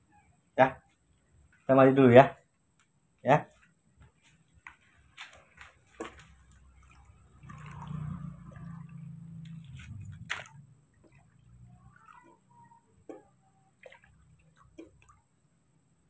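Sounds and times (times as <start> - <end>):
water pouring into basin: 5.9 - 15.3.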